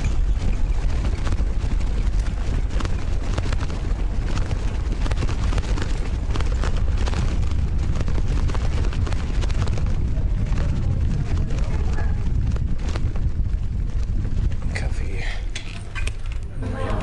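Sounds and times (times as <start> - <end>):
wind buffeting microphone: 0.0 - 17.0
clicks and rattles: 15.4 - 16.6.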